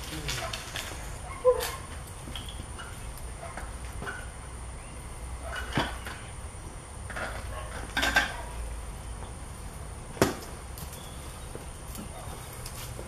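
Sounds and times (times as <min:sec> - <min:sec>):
bicycle metallic knocks and rattles: 0:02.2 - 0:04.4, 0:05.4 - 0:06.3, 0:07.1 - 0:08.5.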